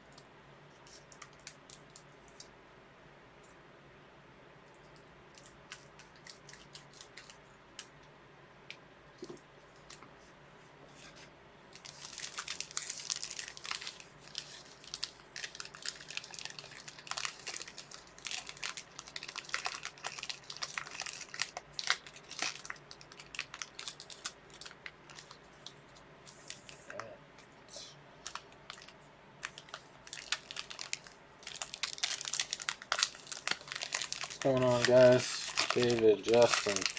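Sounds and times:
card packaging crinkling and tearing: 0:11.8 - 0:26.9, 0:28.2 - 0:36.9.

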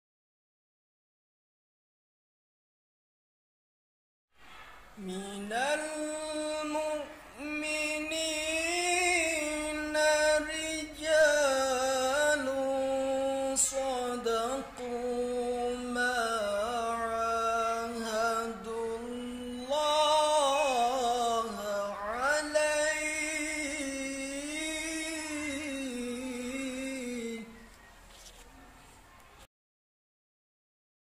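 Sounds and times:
man chanting recitation: 0:05.0 - 0:27.9.

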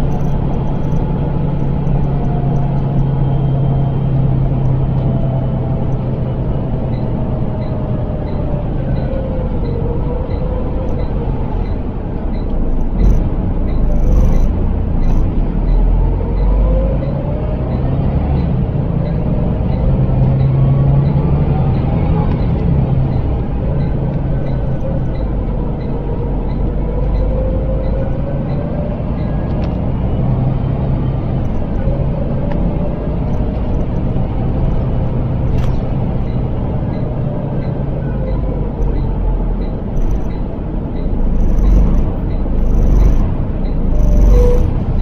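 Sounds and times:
bus engine and road rumble: 0:00.0 - 0:45.0
faint ticking: 0:38.8 - 0:44.7.

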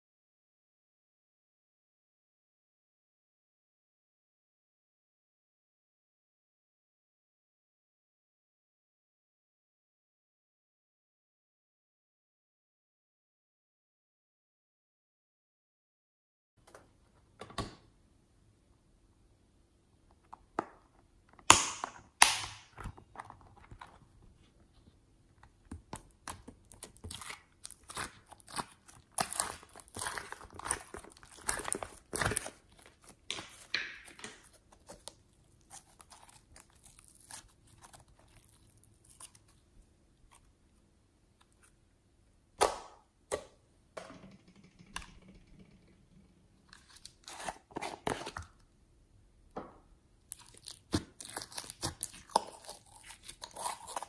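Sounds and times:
plastic container clicks and snaps: 0:21.4 - 0:23.0
slime crackling: 0:25.8 - 0:40.5, 0:50.3 - 0:54.0.

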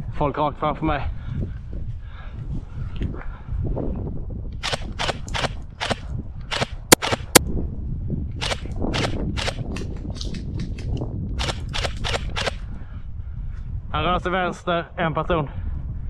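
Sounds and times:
steady low rumble: 0:00.0 - 0:16.0
airsoft gun shots: 0:04.6 - 0:07.4, 0:08.4 - 0:09.6, 0:11.4 - 0:12.6
sharp loud cracks: 0:04.6 - 0:07.5, 0:08.4 - 0:09.7, 0:11.4 - 0:12.6.

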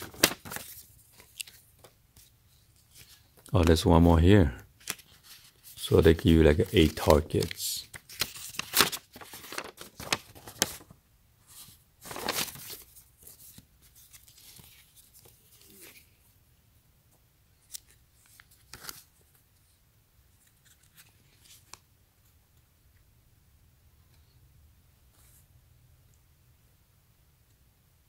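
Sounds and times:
paper rustling and crackling: 0:00.0 - 0:03.8, 0:04.8 - 0:16.1, 0:17.6 - 0:19.4.

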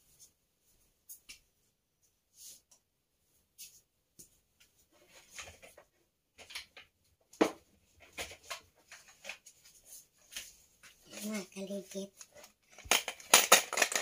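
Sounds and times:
objects rustling and knocking: 0:03.6 - 0:14.0.

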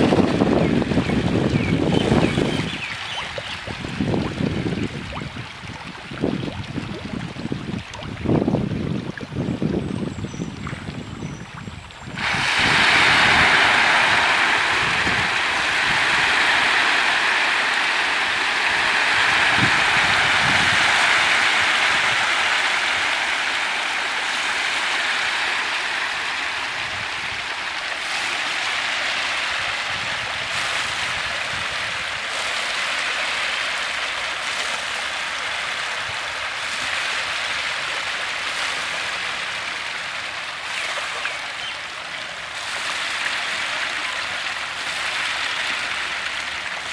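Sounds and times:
fish splashing at water surface: 0:12.2 - 0:46.9.

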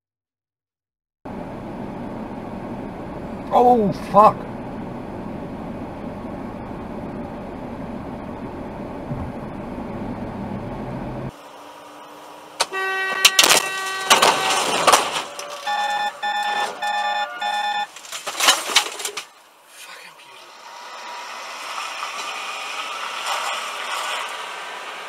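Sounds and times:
car road and engine rumble: 0:01.3 - 0:25.0
long horn-like blast: 0:12.1 - 0:17.8, 0:20.5 - 0:21.7
knocks and clatter: 0:12.6 - 0:17.1, 0:17.9 - 0:19.4
short beeps: 0:15.6 - 0:17.9.

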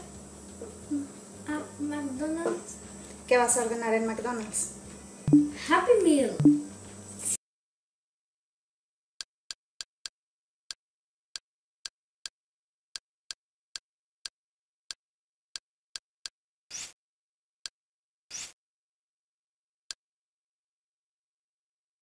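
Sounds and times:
louder menu clicks: 0:05.3 - 0:05.6, 0:06.4 - 0:06.7.

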